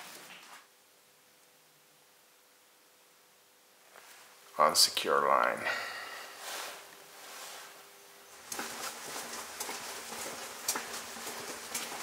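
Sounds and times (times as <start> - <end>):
footsteps on concrete: 8.3 - 12.0.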